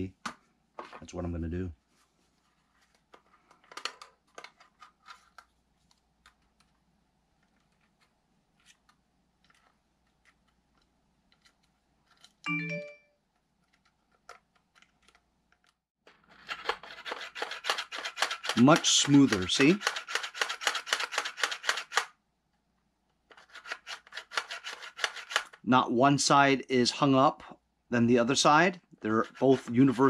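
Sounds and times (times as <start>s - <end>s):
magazine follower clicking and rattling: 16.4s - 22.1s, 23.3s - 25.6s.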